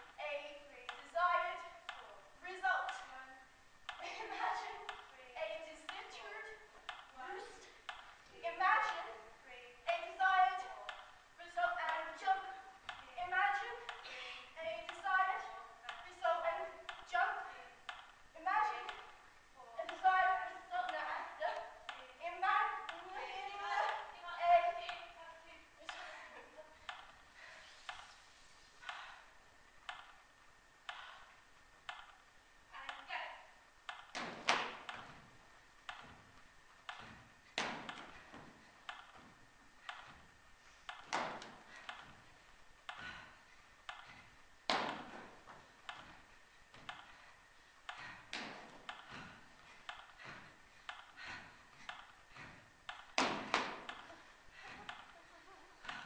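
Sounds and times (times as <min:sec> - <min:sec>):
sharp echoing ticks: 0:04.8 - 0:05.2, 0:09.9 - 0:11.2, 0:11.8 - 0:13.1, 0:15.8 - 0:18.2, 0:18.8 - 0:22.1, 0:24.8 - 0:25.2, 0:26.8 - 0:27.2, 0:28.8 - 0:29.2, 0:29.8 - 0:30.2, 0:30.8 - 0:33.1, 0:33.8 - 0:35.2, 0:35.8 - 0:36.2, 0:36.8 - 0:40.2, 0:40.8 - 0:45.2, 0:45.8 - 0:56.0.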